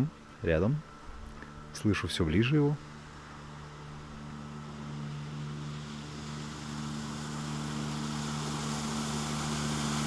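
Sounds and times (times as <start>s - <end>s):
motorboat engine running: 0.0s - 10.0s.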